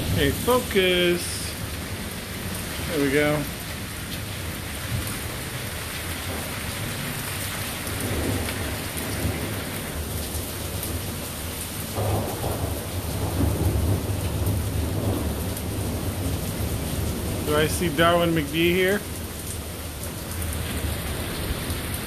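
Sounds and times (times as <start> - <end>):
thunder rumbling: 0.0 - 19.3
steady rain falling: 0.0 - 22.0.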